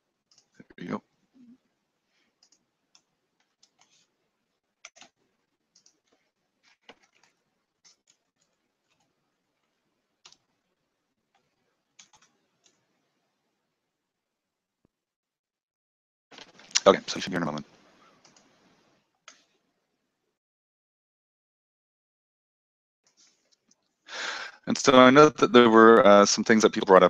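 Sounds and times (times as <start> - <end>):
mouse and keyboard clicks: 4.8 - 5.2, 5.8 - 9.1, 11.4 - 12.8.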